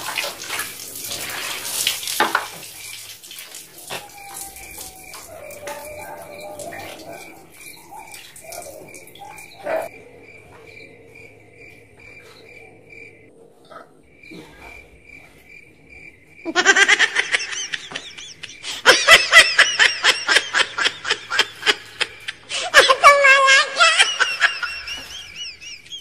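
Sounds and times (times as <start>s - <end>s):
crickets chirping: 0.4s - 26.0s
loud laughter: 16.4s - 26.0s.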